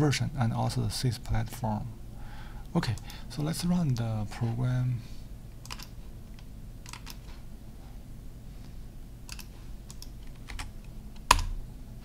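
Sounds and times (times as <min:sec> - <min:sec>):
keyboard and mouse clicks: 0:05.6 - 0:07.4, 0:09.3 - 0:11.6.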